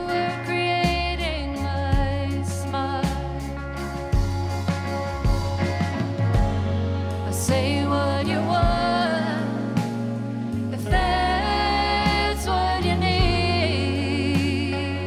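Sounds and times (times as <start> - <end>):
women singing in harmony: 0.0 - 3.1, 7.2 - 15.0
bass line: 0.0 - 15.0
keyboard: 0.0 - 15.0
drum hits: 4.2 - 7.9.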